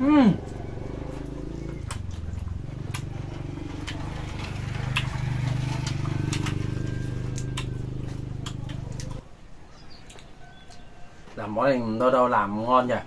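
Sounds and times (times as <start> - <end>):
engine humming: 0.0 - 9.2.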